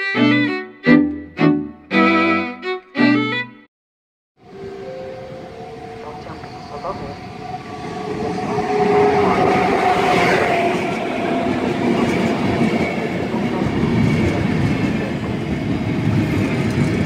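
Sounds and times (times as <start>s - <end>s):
electric locomotive whine: 4.4s - 17.0s
coach wheels rumbling on rails: 5.4s - 17.0s.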